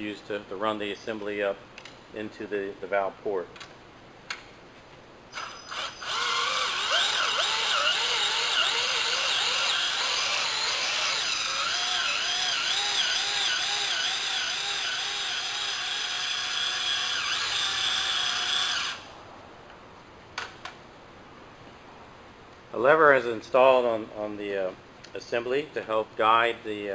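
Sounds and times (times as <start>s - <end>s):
cordless drill motor whine: 5.3s - 19.1s
drill clicks: 5.4s - 19.0s.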